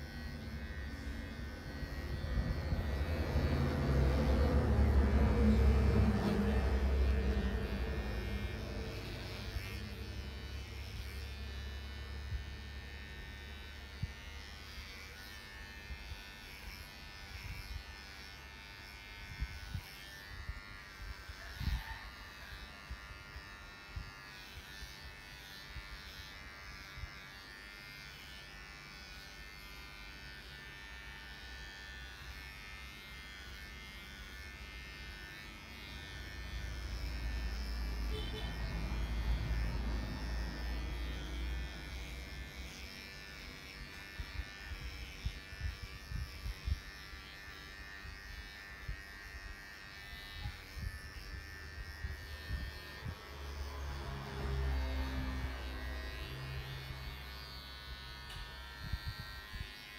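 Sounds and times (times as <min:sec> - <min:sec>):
electric clippers buzzing: 0:00.0 - 0:59.9
low rumble: 0:00.2 - 0:10.6.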